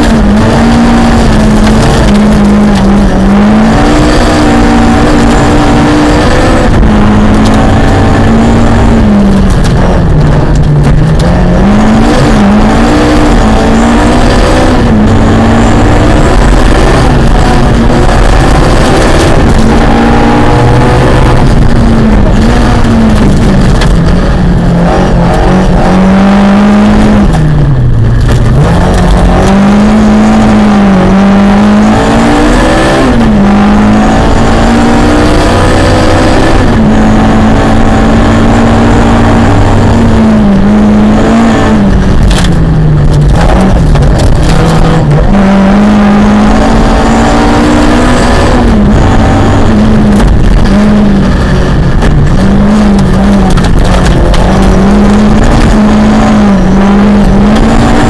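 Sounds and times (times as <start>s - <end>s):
rally car engine revving: 0.0s - 58.0s
gravel noise from tyres: 21.2s - 25.8s, 27.2s - 30.3s, 41.6s - 45.4s, 48.1s - 58.0s.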